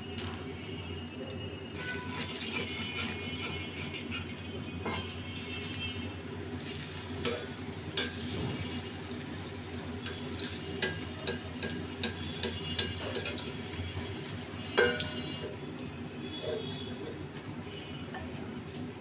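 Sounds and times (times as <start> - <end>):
fritters sizzling in oil: 0.0 - 19.0
metal spoon clinking on pan: 1.8 - 5.5, 6.9 - 8.4, 10.0 - 14.0, 14.7 - 15.6.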